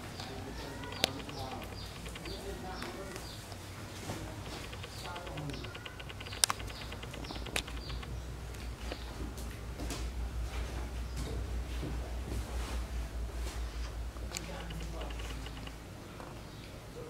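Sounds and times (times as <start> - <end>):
sharp click: 0.7 - 3.3, 4.4 - 9.1, 14.3 - 15.8.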